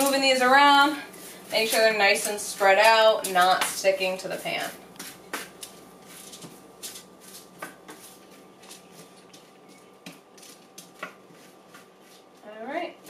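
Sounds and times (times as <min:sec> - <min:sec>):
spatula scraping a sheet pan: 0:00.0 - 0:09.8, 0:10.4 - 0:12.5.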